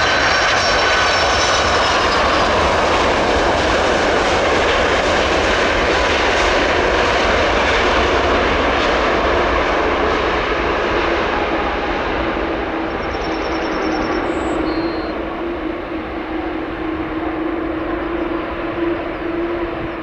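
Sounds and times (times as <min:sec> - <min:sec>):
jet engines roaring: 0:00.0 - 0:20.0
steady whine: 0:00.0 - 0:20.0.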